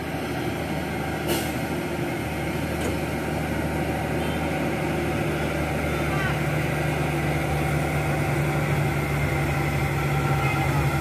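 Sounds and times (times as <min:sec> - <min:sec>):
diesel truck engine running: 0:00.0 - 0:11.0.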